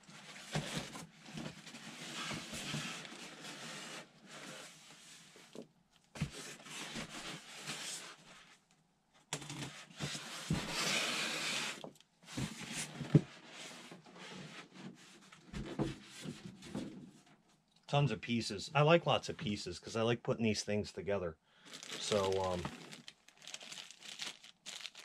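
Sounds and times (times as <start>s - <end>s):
foam packaging scraping: 10.1s - 11.8s, 21.7s - 25.0s
plastic wrap rustling: 21.6s - 25.0s.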